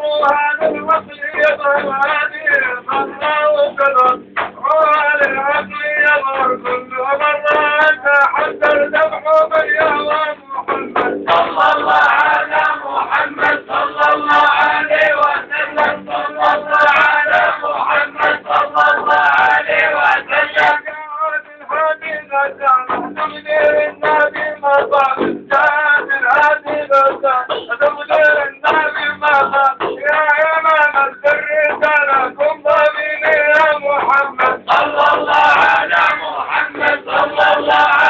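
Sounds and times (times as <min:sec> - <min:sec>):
men chanting together: 0:11.3 - 0:20.8, 0:34.2 - 0:38.0.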